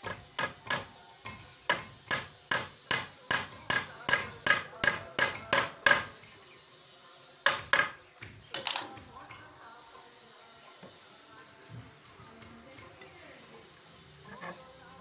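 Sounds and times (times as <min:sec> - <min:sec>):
hammer blows on wooden frame: 0:00.0 - 0:06.2.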